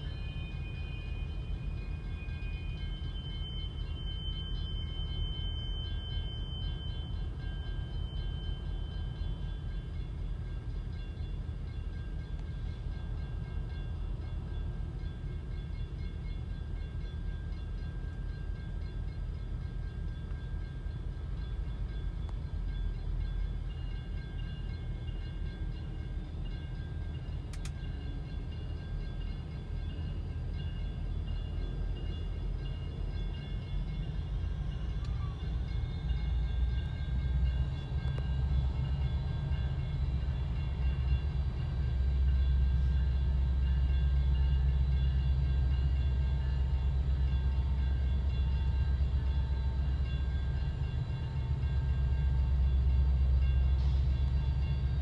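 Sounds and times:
crossing bell ringing: 0.0 - 55.0
locomotive low rumble: 0.0 - 55.0.

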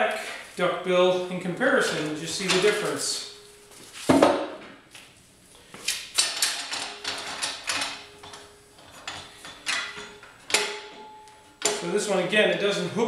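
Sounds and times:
tire changer tools clicking and clunking: 1.9 - 3.4, 5.9 - 12.1.

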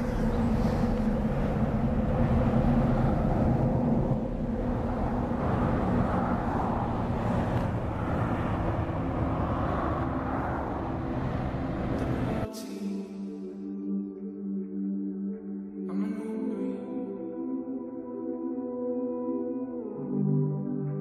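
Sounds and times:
tyre noise from passing vehicles: 0.0 - 12.5
truck engine drone: 0.0 - 13.5.

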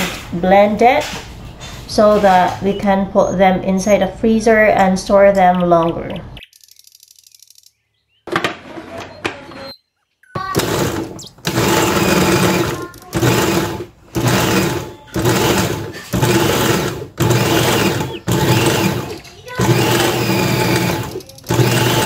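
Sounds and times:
food processor chopping: 10.4 - 22.0.

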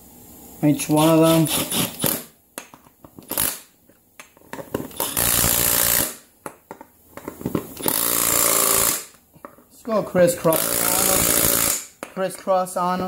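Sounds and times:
impact driver hammering bolts: 10.5 - 12.2.

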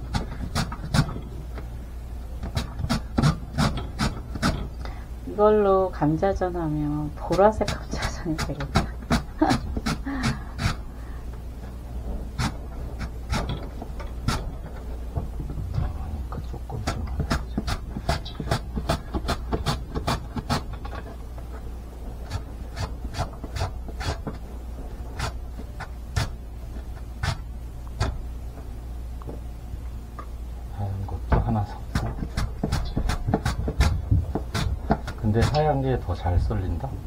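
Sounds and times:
potato slicing on julienne slicer: 2.4 - 4.8, 7.3 - 10.8, 16.8 - 21.0, 22.3 - 24.4, 31.4 - 35.8.

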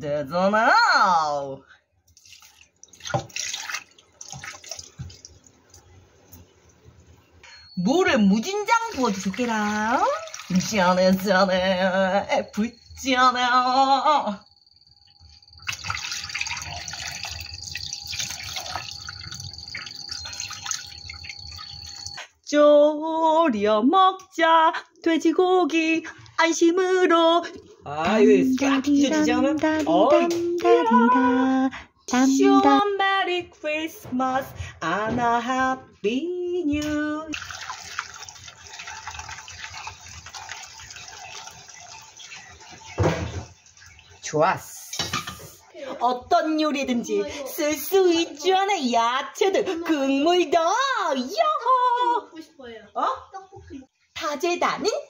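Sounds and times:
water pouring into a pot: 2.1 - 6.0, 8.4 - 11.5, 15.4 - 22.2, 37.3 - 44.2.

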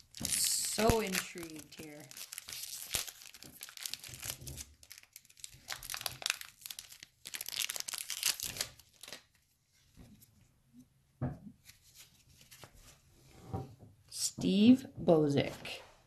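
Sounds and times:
cards rustling: 0.0 - 9.4
wrapper tearing and crumpling: 0.0 - 9.4.

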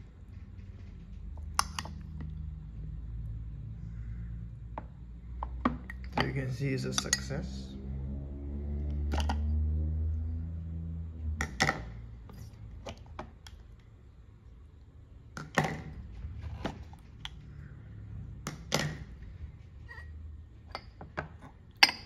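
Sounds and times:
low hum: 0.0 - 12.8
plastic lids clicking and knocking: 1.4 - 2.3, 11.4 - 12.0, 15.4 - 16.0.

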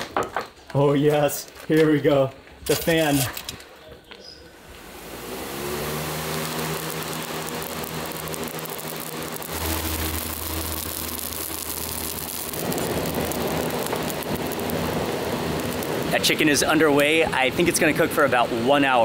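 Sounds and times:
electric fan humming: 4.4 - 19.0
fire rushing: 4.5 - 19.0
deep rumble: 4.6 - 17.6.

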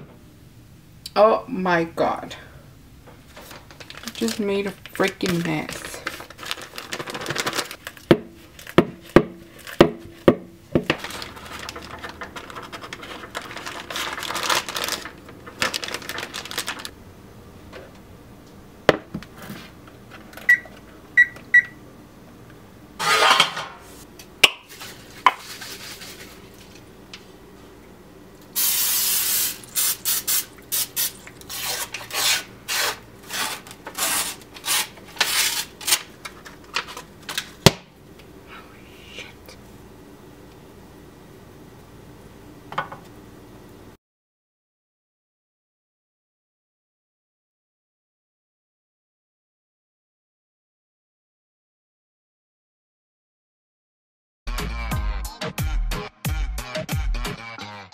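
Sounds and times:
plastic bag crinkling: 3.3 - 10.1, 10.9 - 16.9
hiss: 28.6 - 31.2.

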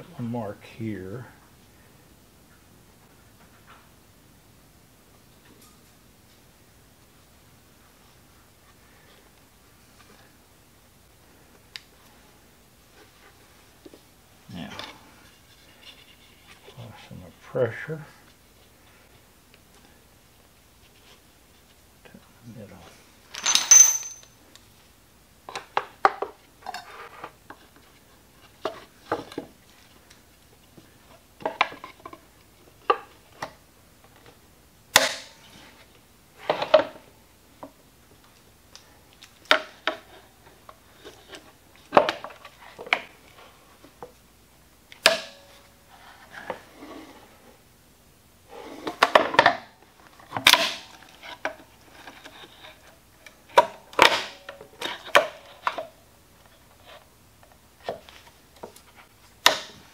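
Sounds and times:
metal clamps clicking and knocking: 23.4 - 24.3.

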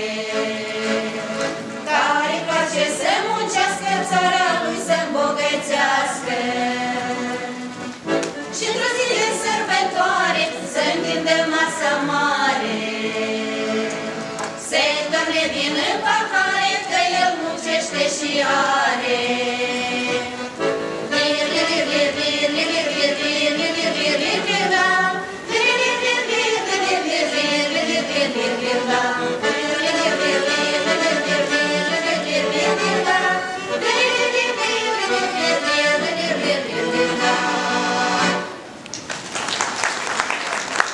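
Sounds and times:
women singing folk song: 0.0 - 38.5
applause: 38.9 - 40.9.

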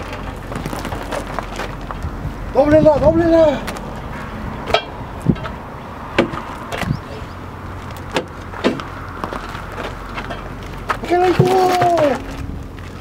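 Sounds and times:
tire iron knocking on truck tire: 6.2 - 7.0.

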